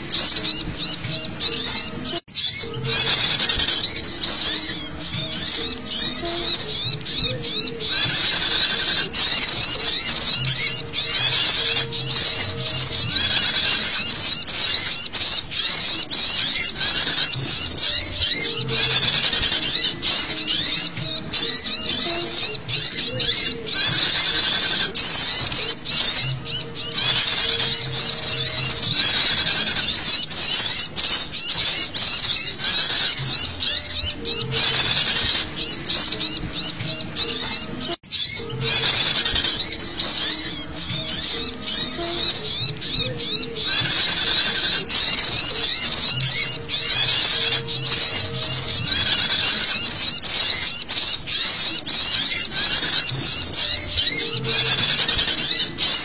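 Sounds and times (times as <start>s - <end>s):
songbirds chirping and twittering: 0.0s - 56.0s.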